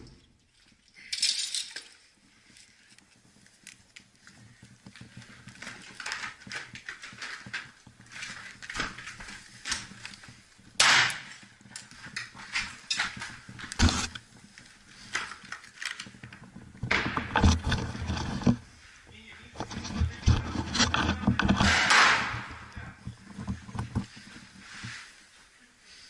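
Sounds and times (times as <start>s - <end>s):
sharp cracks and clinks: 10.8s - 14.2s.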